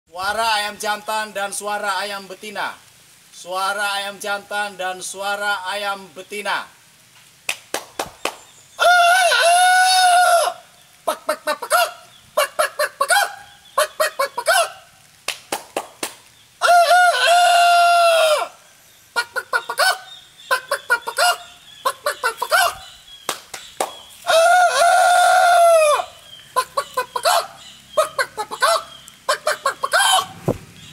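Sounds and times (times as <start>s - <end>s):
man imitating hen clucks: 8.8s - 14.8s, 19.2s - 22.9s, 26.6s - 30.4s
man imitating rooster crows: 8.8s - 14.8s, 16.6s - 18.6s, 22.0s - 22.8s, 24.2s - 30.4s.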